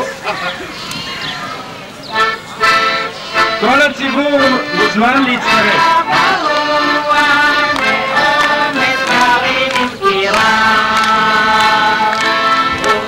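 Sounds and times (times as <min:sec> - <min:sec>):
accordion: 0:00.0 - 0:13.0
women singing together: 0:05.6 - 0:13.0.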